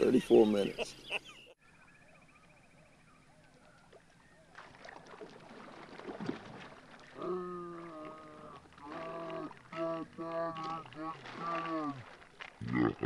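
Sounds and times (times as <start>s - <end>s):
water sloshing and splashing: 3.7s - 13.0s.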